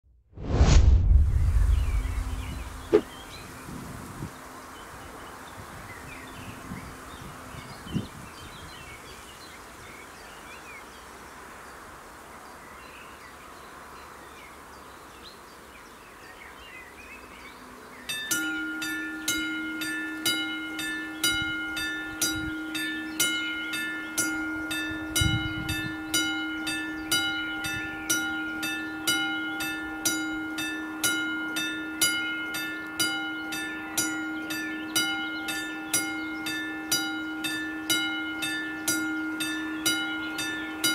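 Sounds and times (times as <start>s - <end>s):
insects buzzing: 1.4s - 40.9s
level crossing warning bell: 18.1s - 40.9s
steady warning tone: 18.1s - 40.9s.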